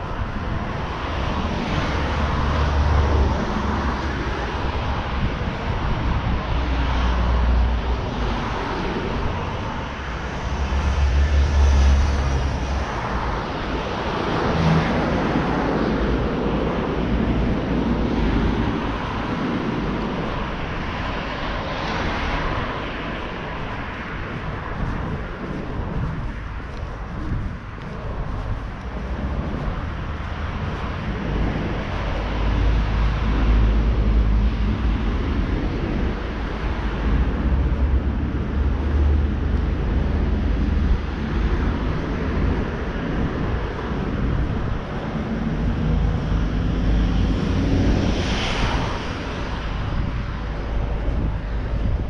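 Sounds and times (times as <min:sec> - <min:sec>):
road traffic passing: 0:00.0 - 0:52.0
wind rumbling on microphone: 0:00.0 - 0:52.0.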